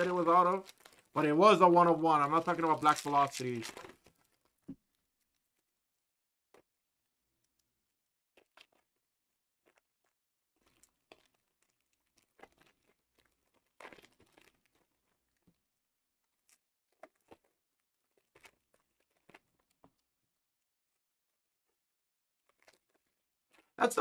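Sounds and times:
foil wrappers crinkling and tearing: 0.0 - 4.6, 9.7 - 20.1.

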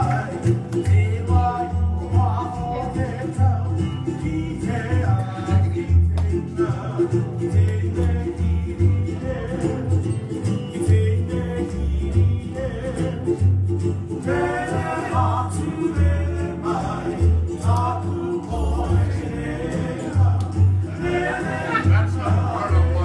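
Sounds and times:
person singing: 0.0 - 13.5, 14.1 - 23.0
plucked strings: 0.0 - 23.0
pulsing bass: 0.0 - 23.0.

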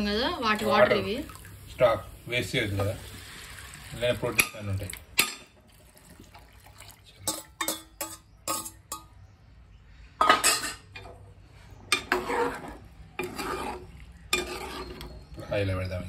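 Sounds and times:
spoon clinking against metal pot: 7.2 - 9.2
spoon stirring through chickpeas: 12.0 - 15.4.

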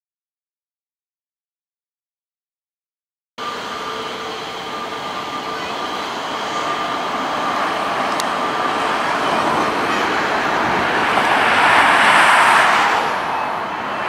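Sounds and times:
jet airliner rumble with whine: 3.4 - 14.0.

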